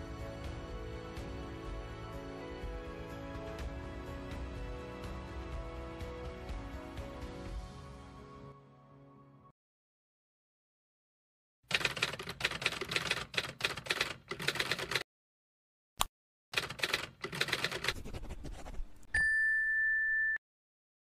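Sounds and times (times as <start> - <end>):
typewriter keystrokes: 11.7 - 15.0, 16.6 - 18.0.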